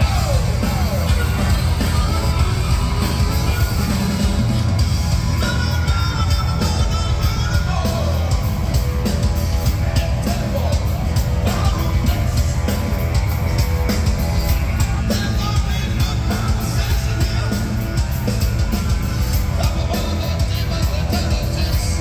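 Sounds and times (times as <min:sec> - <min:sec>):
lead vocal singing: 0:00.0 - 0:08.6, 0:09.8 - 0:12.9, 0:14.9 - 0:18.1, 0:19.3 - 0:22.0
live hard rock band: 0:00.0 - 0:22.0.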